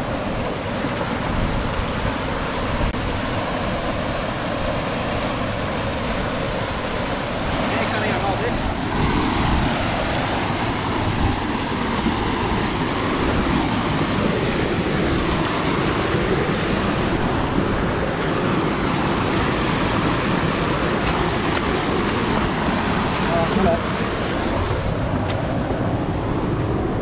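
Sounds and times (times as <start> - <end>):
water rushing over rocks: 0.0 - 27.0.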